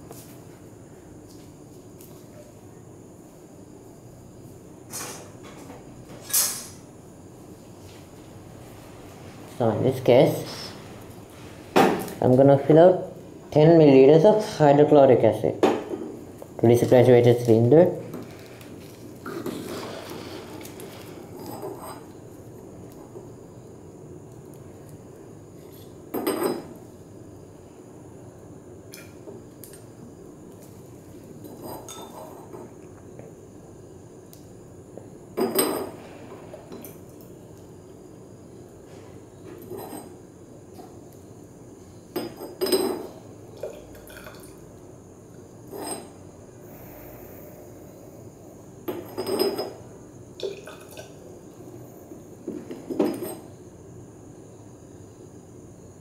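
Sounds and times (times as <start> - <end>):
glass bottle clinking: 48.9 - 49.8.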